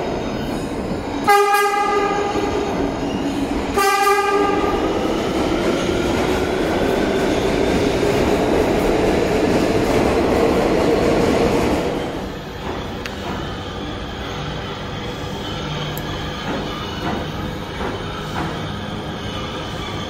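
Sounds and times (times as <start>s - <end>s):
train cars clattering past: 0.0s - 20.0s
train horn: 1.2s - 2.7s, 3.7s - 4.9s.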